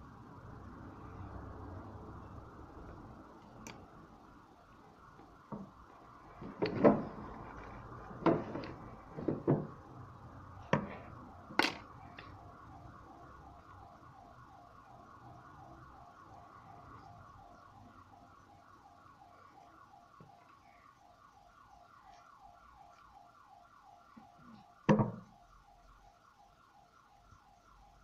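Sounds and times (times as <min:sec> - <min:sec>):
small tools clicking and knocking: 0:11.5 - 0:12.4.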